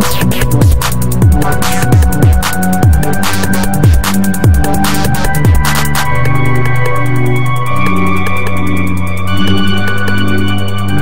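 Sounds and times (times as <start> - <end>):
deep sliding bass hits: 0.1 - 6.2
bright hi-hat ticks: 0.1 - 11.0.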